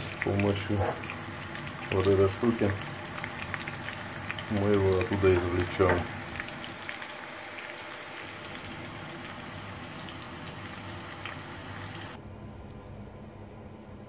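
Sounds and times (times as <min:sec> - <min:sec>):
onion sizzling in hot oil: 0:00.0 - 0:12.2.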